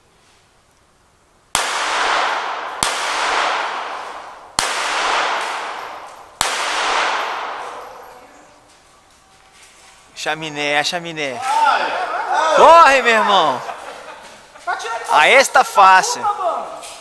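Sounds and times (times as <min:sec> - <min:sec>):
pistol shots echoing: 0:01.5 - 0:08.3.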